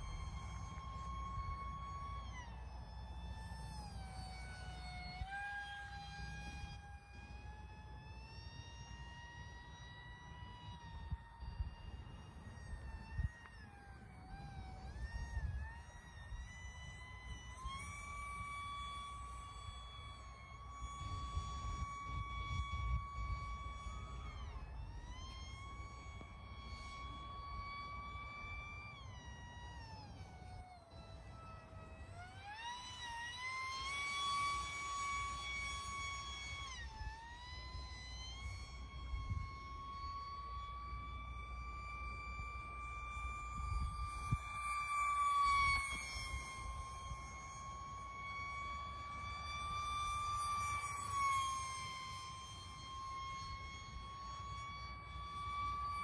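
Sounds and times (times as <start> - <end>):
electric motor whining: 0.0 - 56.0
wind rumble on microphone: 8.6 - 33.2, 34.3 - 40.8, 41.6 - 56.0.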